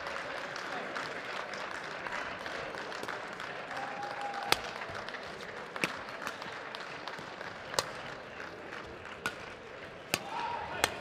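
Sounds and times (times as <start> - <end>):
racket hitting shuttlecock: 7.2 - 8.1, 9.1 - 11.0.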